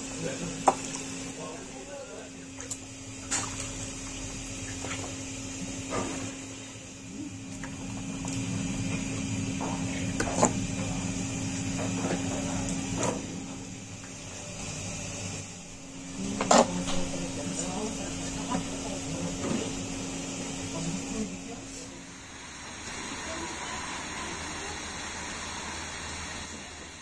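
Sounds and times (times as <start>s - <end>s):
low machine hum: 0.0s - 27.0s
wet splashes and squelches: 2.6s - 5.2s.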